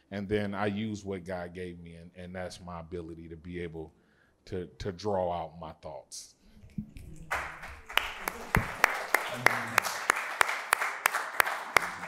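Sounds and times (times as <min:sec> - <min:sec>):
audience applause: 0:07.3 - 0:12.0.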